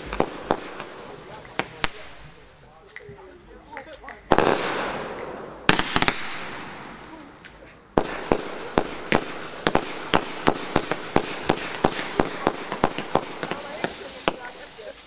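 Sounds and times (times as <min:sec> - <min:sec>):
rapid firework reports: 0:00.0 - 0:15.0
firework bang: 0:04.3 - 0:14.7.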